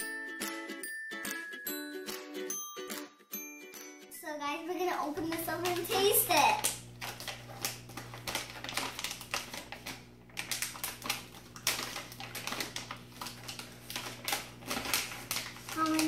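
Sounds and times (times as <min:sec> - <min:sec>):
plastic pouch crinkling: 0:05.1 - 0:16.0.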